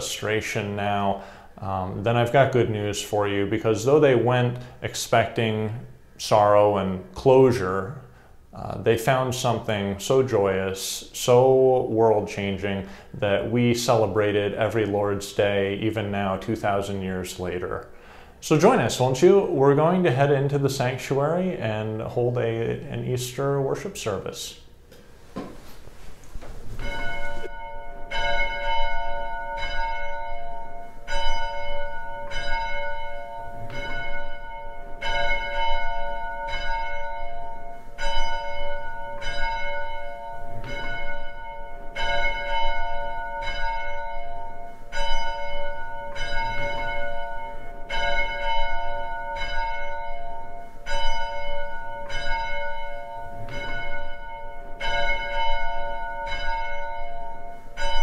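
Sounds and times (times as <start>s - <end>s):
church bell ringing: 26.8s - 58.0s.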